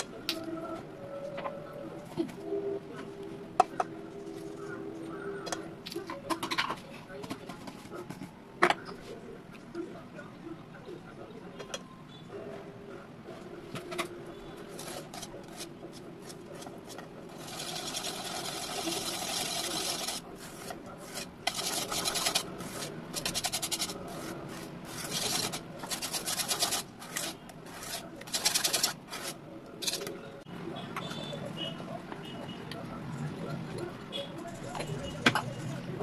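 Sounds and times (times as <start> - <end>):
whisk scraping metal bowl: 14.7 - 30.1.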